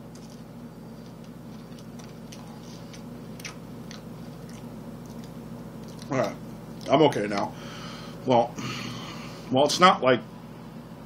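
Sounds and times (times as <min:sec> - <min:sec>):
chip being chewed: 0:00.0 - 0:07.5
steady low hum: 0:00.0 - 0:11.0.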